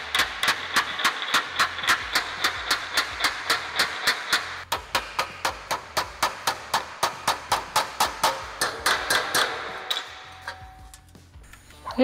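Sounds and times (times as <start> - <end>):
hammer tapping sheet steel: 0.0 - 11.0.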